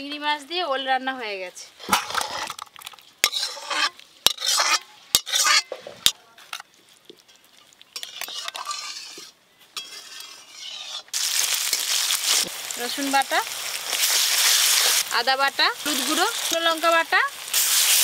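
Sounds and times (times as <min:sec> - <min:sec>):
metal spatula scraping wok: 0:01.8 - 0:06.2, 0:07.9 - 0:18.0
shallots sizzling in hot oil: 0:02.1 - 0:05.6, 0:09.8 - 0:18.0.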